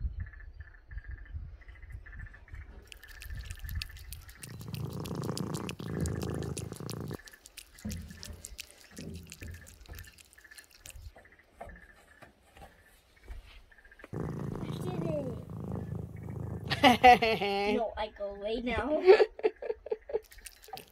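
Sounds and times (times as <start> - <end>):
cat chewing and licking food: 2.8 - 11.2, 14.2 - 17.0, 20.2 - 20.9.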